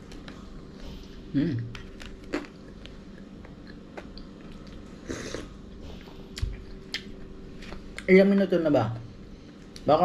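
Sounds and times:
person chewing toast: 1.7 - 5.6.

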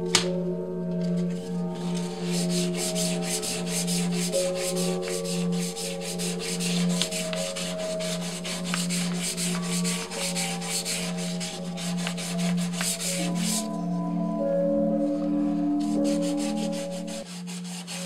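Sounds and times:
hand sanding metal: 1.8 - 13.7, 15.9 - 18.0.

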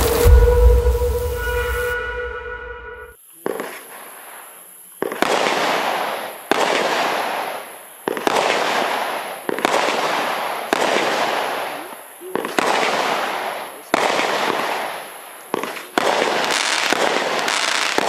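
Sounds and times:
crackling star bursts: 0.0 - 18.0
fireworks bangs: 0.0 - 18.0.

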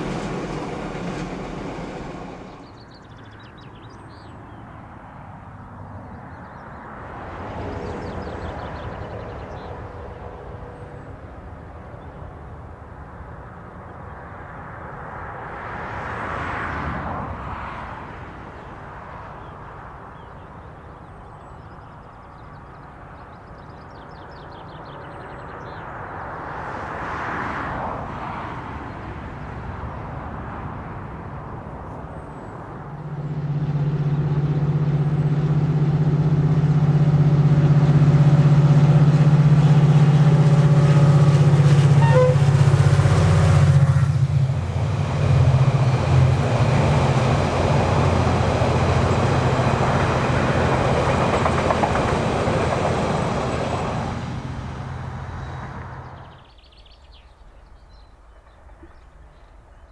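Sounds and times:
diesel locomotive engine drone: 0.0 - 3.4, 30.6 - 56.4
vehicles passing: 0.0 - 59.7.

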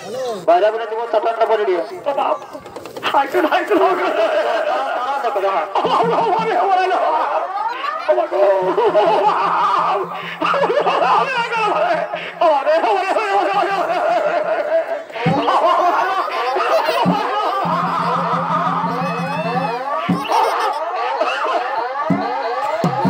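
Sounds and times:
reedy wind instrument melody: 17.1 - 21.2.

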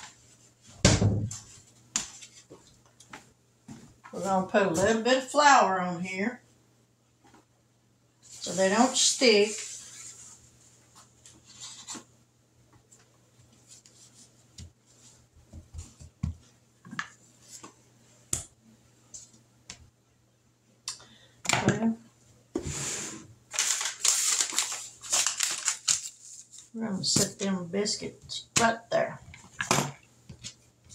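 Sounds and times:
rustling: 8.2 - 12.1, 23.5 - 26.8.

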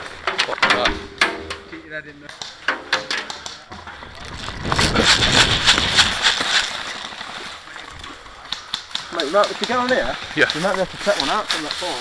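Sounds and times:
footsteps running through dry leaves: 4.4 - 7.6.

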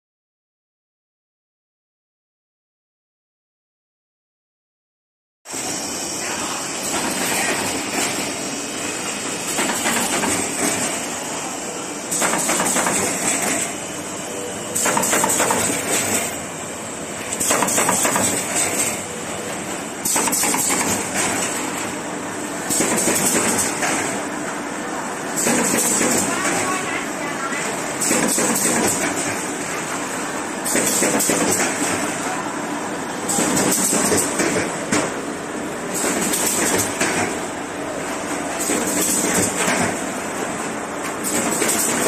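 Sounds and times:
machine clattering: 12.1 - 13.7, 14.8 - 16.4, 17.4 - 19.0, 20.0 - 21.7, 28.0 - 29.4.

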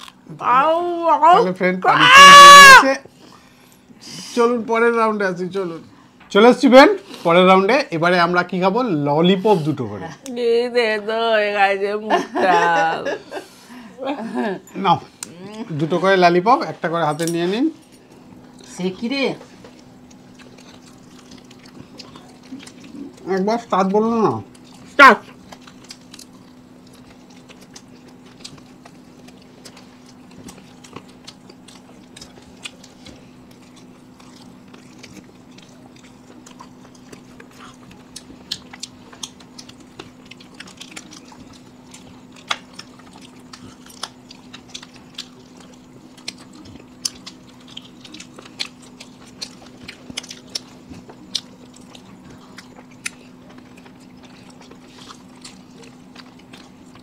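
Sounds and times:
crunchy chewing: 15.1 - 57.0.

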